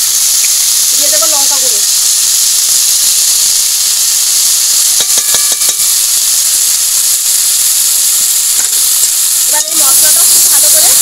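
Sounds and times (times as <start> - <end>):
vegetables sizzling in oil: 0.0 - 11.0
short metal clinks: 4.9 - 6.1.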